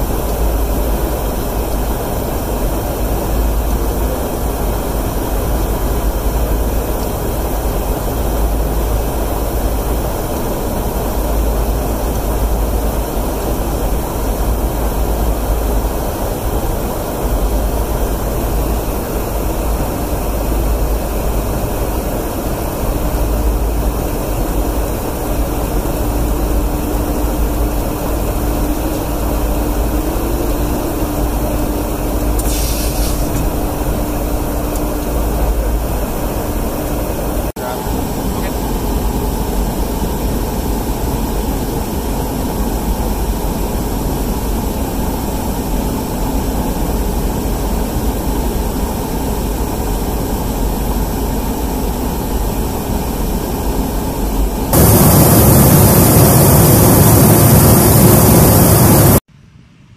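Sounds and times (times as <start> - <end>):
aircraft engine and air rumble: 0.0 - 59.3
faint steady hum: 0.0 - 59.9
short hiss: 32.4 - 33.4.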